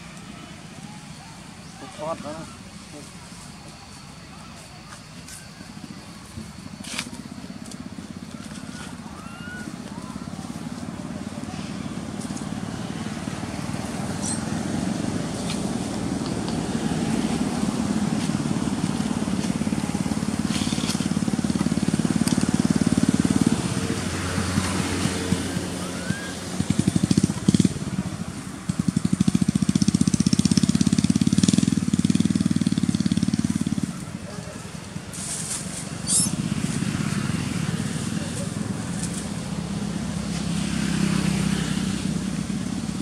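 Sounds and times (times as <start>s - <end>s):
small engine running: 0.5s - 43.0s.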